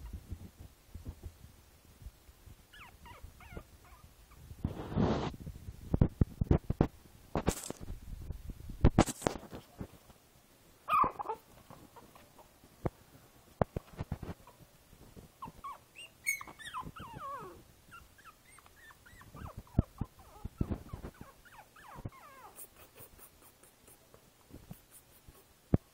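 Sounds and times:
puppy whimpering: 2.8s - 4.1s, 10.9s - 12.5s, 15.4s - 23.6s
knocks and rustles: 4.6s - 10.2s, 11.5s - 15.6s.

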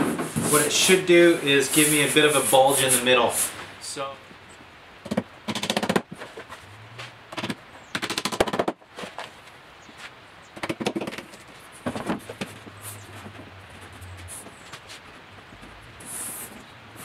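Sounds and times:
hammer striking wood: 7.4s - 8.8s.

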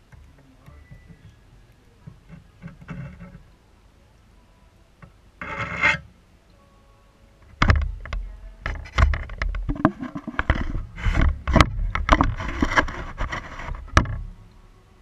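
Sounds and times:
knocks and scraping on camera housing: 2.1s - 3.4s, 7.5s - 14.2s.

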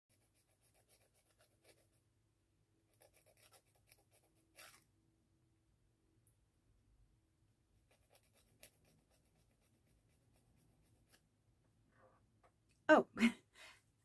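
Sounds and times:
nail file rasping: 2.9s - 4.8s, 7.8s - 11.2s.

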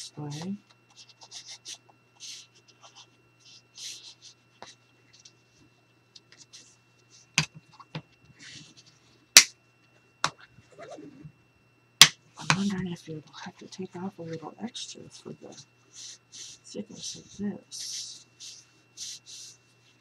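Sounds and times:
thick paper rustling and scraping: 15.9s - 20.0s.

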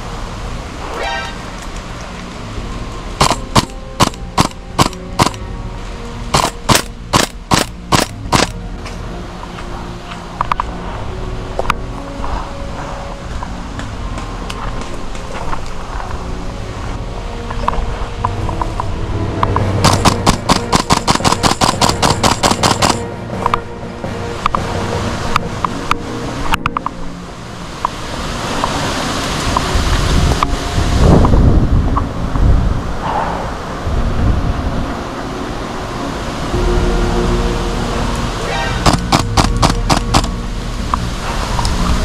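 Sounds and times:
background music: 0.0s - 42.0s
airsoft rifle shots: 3.2s - 5.4s, 6.3s - 8.6s, 19.8s - 23.0s, 38.8s - 40.3s.

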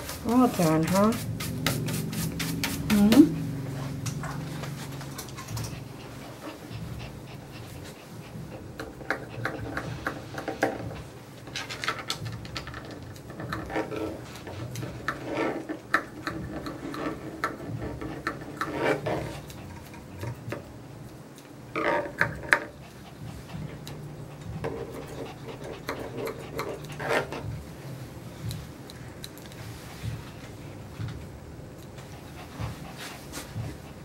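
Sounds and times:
grooming shears snipping: 0.0s - 11.0s.

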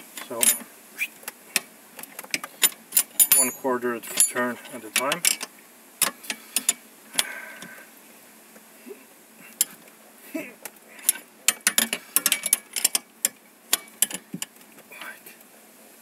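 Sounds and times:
wrench clinking on metal bolt: 0.4s - 0.6s, 2.6s - 4.4s, 11.0s - 13.0s.

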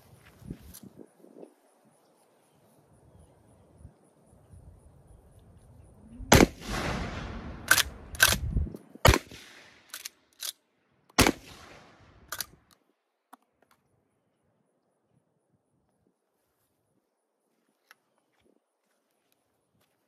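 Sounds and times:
shotgun booming with echo: 6.3s - 8.0s.

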